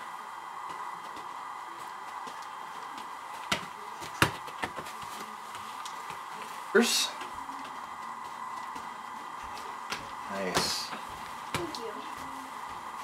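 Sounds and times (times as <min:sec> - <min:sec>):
ball kicked: 0:03.4 - 0:05.1.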